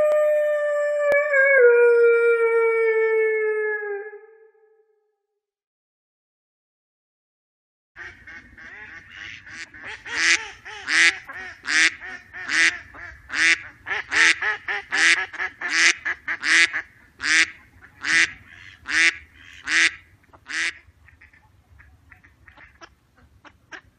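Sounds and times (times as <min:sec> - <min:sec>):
duck quacking: 0:08.0 - 0:23.9.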